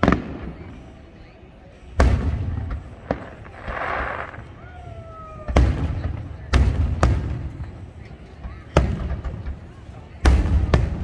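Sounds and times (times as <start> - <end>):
fireworks booming: 0.0 - 0.8, 2.0 - 4.6, 5.4 - 7.8, 8.7 - 11.0.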